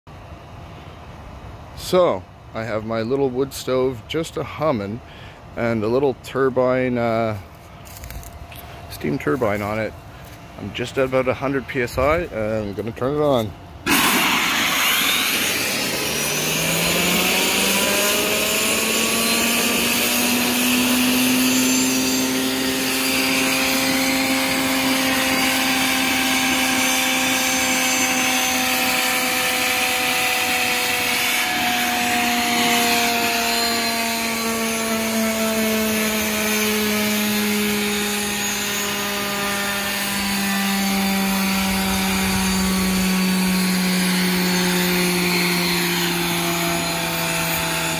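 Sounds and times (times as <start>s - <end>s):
steam turbine whine: 0.1s - 47.9s
steam hissing: 13.9s - 20.2s.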